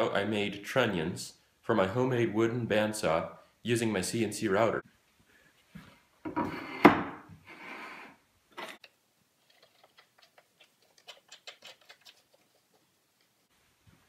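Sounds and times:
board knocking on wooden table: 6.3 - 7.2.

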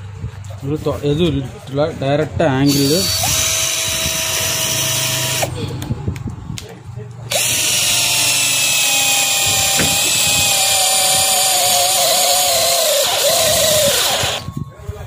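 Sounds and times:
cordless drill motor whine: 2.7 - 5.6, 7.3 - 15.0.

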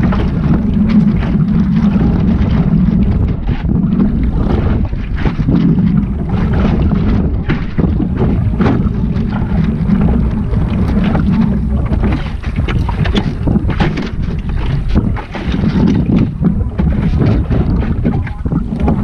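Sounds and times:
low rumble: 0.0 - 19.0
water slapping against hull: 0.0 - 19.0
wind buffeting microphone: 0.0 - 19.0.

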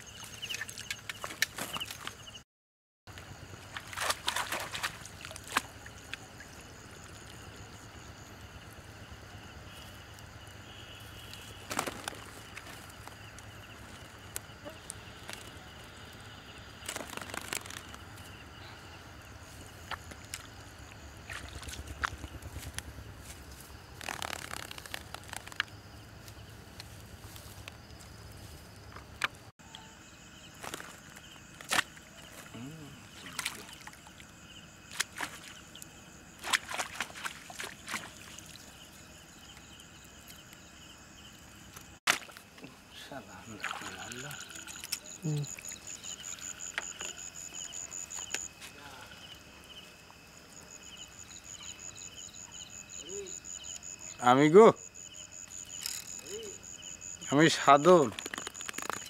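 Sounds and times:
night insects chirping: 0.0 - 2.4, 3.1 - 59.0
spear splashing in shallow water: 3.7 - 5.9, 34.9 - 35.6, 36.4 - 38.7, 42.1 - 42.5, 43.6 - 45.0.

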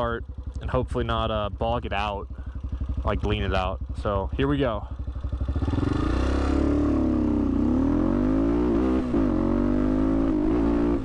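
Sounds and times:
man talking: 0.0 - 2.4, 3.0 - 5.0
motorcycle engine revving: 0.0 - 11.0.

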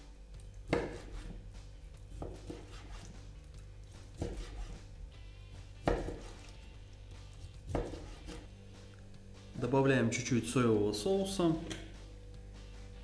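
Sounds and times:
quiet background music: 0.0 - 13.0
knife slicing meat: 0.6 - 5.0, 5.6 - 8.5
knife knocking cutting board: 5.8 - 6.3, 7.7 - 8.4.

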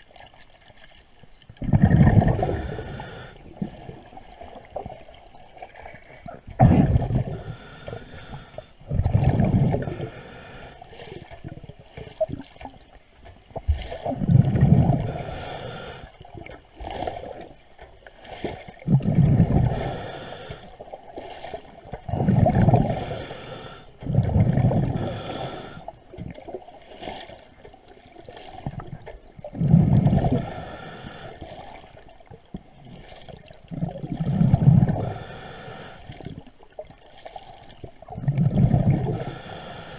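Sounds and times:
breath bubbling from regulator underwater: 1.6 - 4.2, 6.3 - 11.6, 13.8 - 17.5, 18.8 - 20.8, 22.0 - 26.6, 28.4 - 31.8, 33.3 - 36.5, 37.4 - 39.9.

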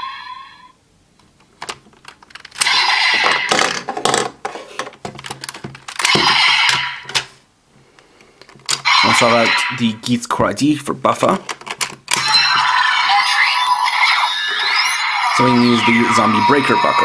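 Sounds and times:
toy electronic sound effect: 2.6 - 3.8, 6.0 - 7.1, 8.8 - 9.8, 12.1 - 17.0
plastic toy clicking and rattling: 11.4 - 12.0.

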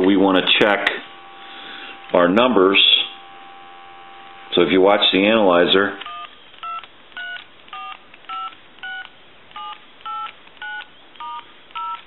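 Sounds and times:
telephone keypad tone beeps: 6.0 - 12.0.

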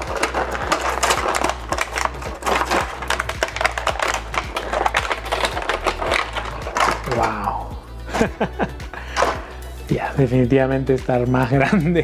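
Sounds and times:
plastic packaging crinkling: 0.0 - 7.7
background music: 0.0 - 12.0.

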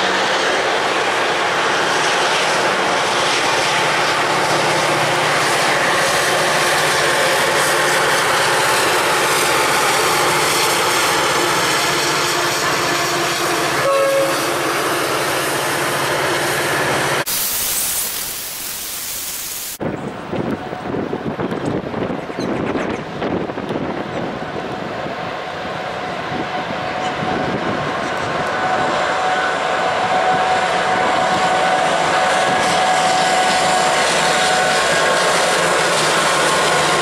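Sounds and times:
diesel locomotive low hum: 0.0 - 37.0
wind noise on microphone: 19.8 - 33.2.

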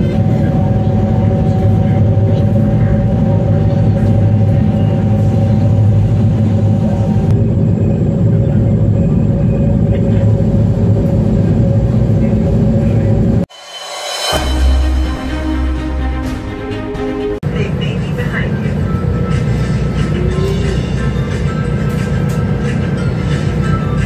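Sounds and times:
ferry engines droning: 0.0 - 24.0
steady whining tones: 0.0 - 24.0.

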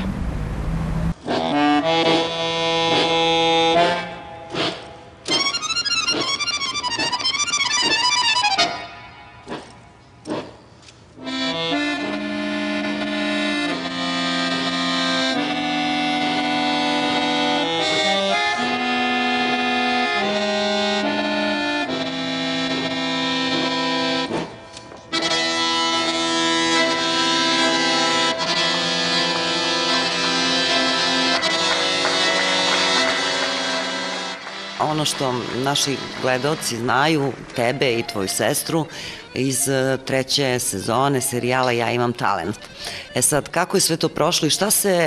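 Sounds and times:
accordion playing chords: 1.1 - 10.6, 11.2 - 45.0.

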